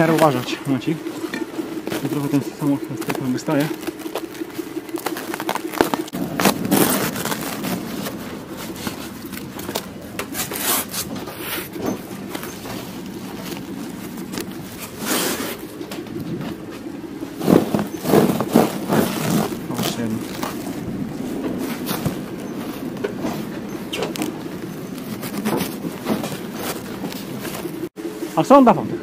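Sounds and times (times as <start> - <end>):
aquarium scraping and sliding: 6.0 - 27.9.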